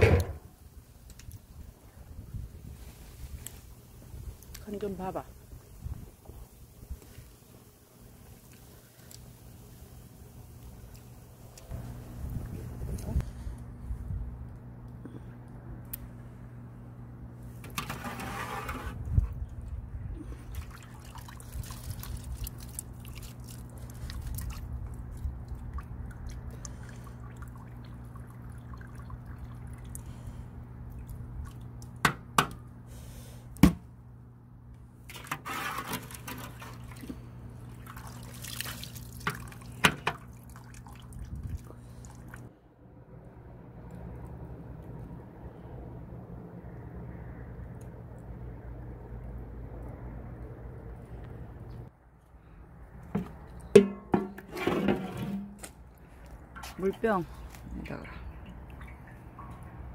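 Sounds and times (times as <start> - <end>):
steady low hum: 0.0 - 35.3
liquid splashing into a pot: 35.1 - 41.3.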